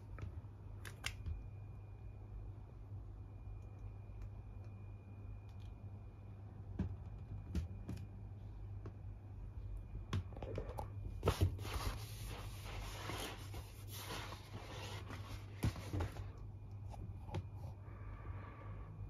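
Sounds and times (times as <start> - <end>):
low steady hum: 0.0 - 19.0
rustling and scraping: 10.4 - 16.4.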